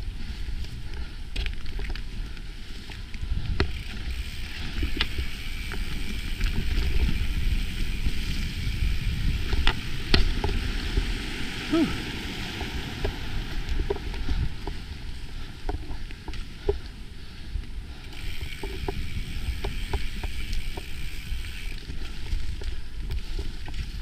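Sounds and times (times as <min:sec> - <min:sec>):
wind on microphone: 0:00.0 - 0:16.8, 0:17.5 - 0:24.0
bike tyres rumbling on dirt: 0:00.0 - 0:24.0
bike clicks and knocks: 0:00.6 - 0:11.2, 0:15.5 - 0:17.0, 0:17.6 - 0:24.0.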